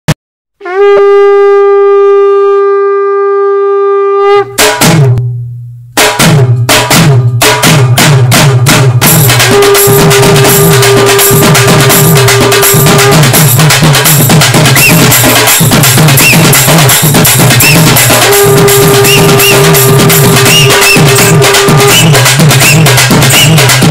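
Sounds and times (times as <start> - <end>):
wind instrument held note: 0.6 - 4.7, 9.5 - 13.5, 17.6 - 22.9
fast drum beat: 6.0 - 23.9.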